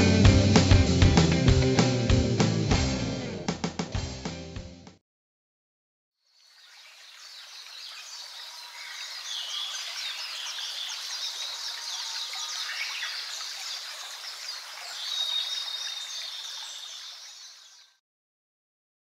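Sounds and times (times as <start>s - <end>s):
small birds chirping: 6.3s - 18.0s.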